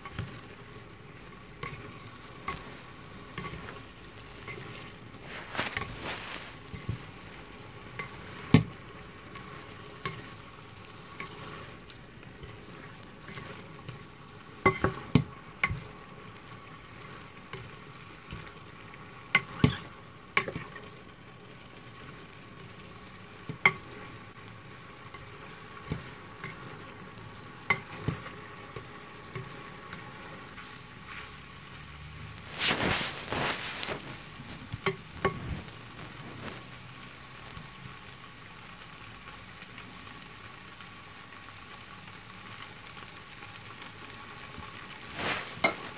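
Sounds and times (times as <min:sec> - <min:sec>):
scraping in a pan: 0:00.0 - 0:21.1, 0:25.0 - 0:27.0, 0:27.6 - 0:36.8, 0:44.4 - 0:45.9
noodles sizzling in a pan: 0:00.0 - 0:45.9
tongs clicking against pan: 0:07.9 - 0:08.7, 0:23.5 - 0:23.8, 0:27.6 - 0:28.0.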